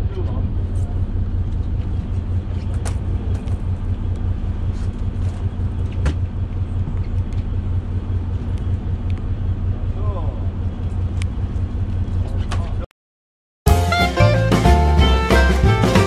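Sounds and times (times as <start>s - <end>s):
boat engine humming: 0.0s - 12.8s, 13.7s - 16.0s.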